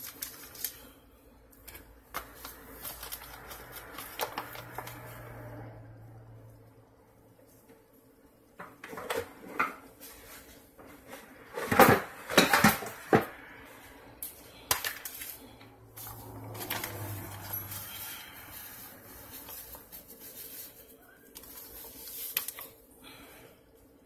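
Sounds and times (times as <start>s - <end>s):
dishes clinking and clattering: 11.5s - 13.3s.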